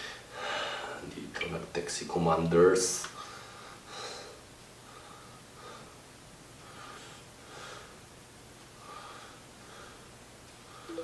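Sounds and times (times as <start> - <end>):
man breathing faintly: 0.0 - 1.0, 3.2 - 6.0, 6.6 - 8.0, 8.8 - 11.0.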